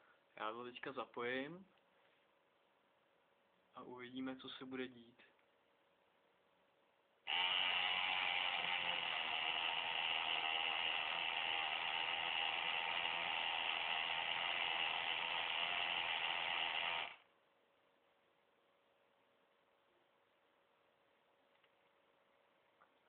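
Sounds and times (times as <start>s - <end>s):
air pump buzzing: 7.3s - 17.3s.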